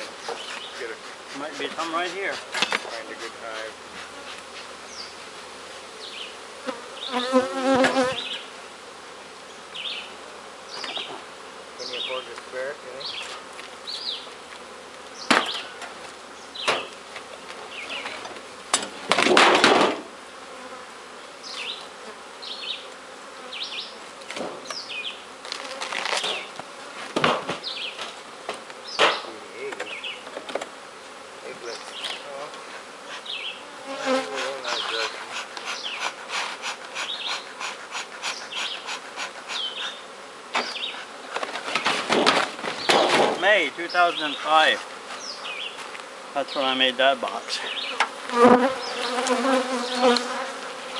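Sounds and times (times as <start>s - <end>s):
bees zipping past: 0.0s - 46.9s, 47.7s - 50.9s
honeybees buzzing: 0.0s - 50.9s
knocks on wooden hive boxes: 15.2s - 15.7s, 16.6s - 17.0s, 18.0s - 20.1s, 27.1s - 30.7s, 41.4s - 43.5s
scraping strokes: 34.1s - 39.9s.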